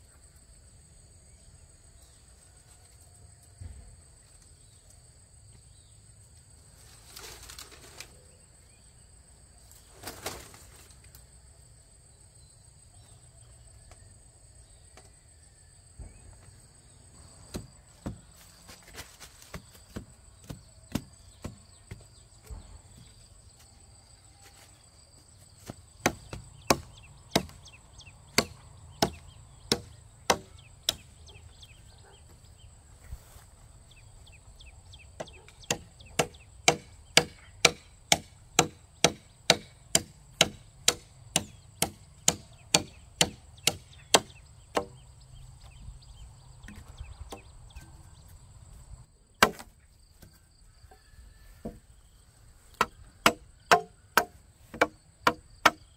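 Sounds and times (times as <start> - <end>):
high insect drone: 0.0 - 55.9
blade chopping into wood: 25.6 - 27.6, 28.4 - 31.1, 35.7 - 44.9, 49.4 - 49.7, 52.8 - 55.8.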